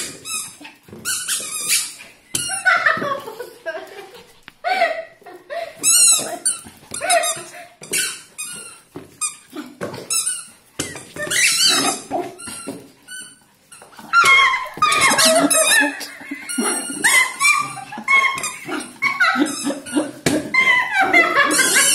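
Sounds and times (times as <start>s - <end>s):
rubber chicken toy squeaking: 10.1s - 13.4s, 14.1s - 21.9s.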